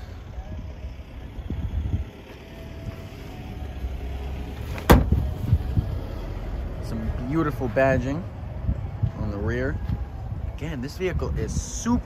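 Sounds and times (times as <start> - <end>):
low steady rumble: 0.0 - 12.0
car trunk lid thud: 4.7 - 5.6
trunk latch click: 4.8 - 5.2.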